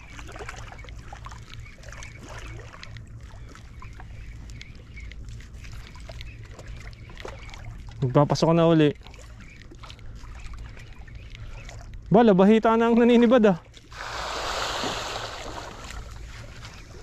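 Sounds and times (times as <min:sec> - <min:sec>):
faint bird calls: 0:00.0 - 0:08.2, 0:09.0 - 0:12.1
water lapping at seawall: 0:00.0 - 0:17.0.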